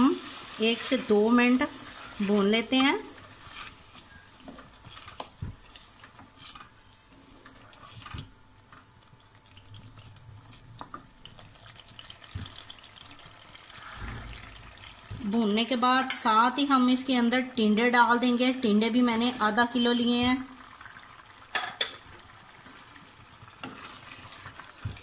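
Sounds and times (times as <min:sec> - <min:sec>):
food sizzling in a metal pot: 0:00.0 - 0:08.2, 0:10.9 - 0:25.0
spoon stirring and scraping a pot: 0:00.4 - 0:08.4, 0:21.6 - 0:25.0.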